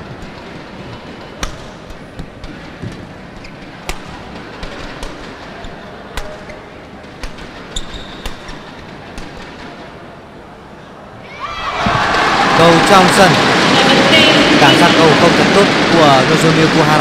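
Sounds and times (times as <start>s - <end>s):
rackets striking shuttlecock: 1.3s - 9.9s
hall noise: 11.8s - 17.0s.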